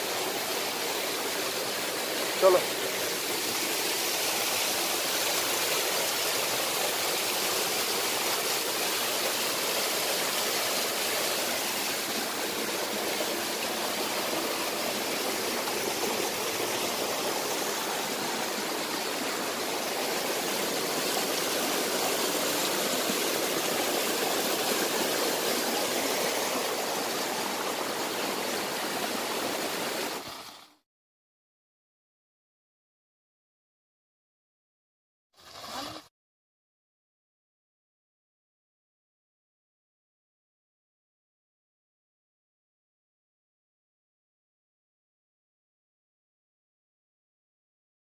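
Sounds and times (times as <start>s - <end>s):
stream flowing over rocks: 0.0s - 30.8s.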